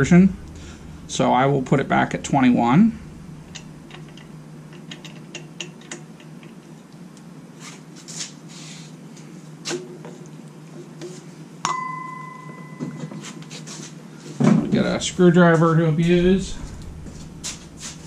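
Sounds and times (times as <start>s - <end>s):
steady low hum: 0.0s - 7.9s, 10.3s - 18.0s
metal clicks and rattles: 3.5s - 6.7s.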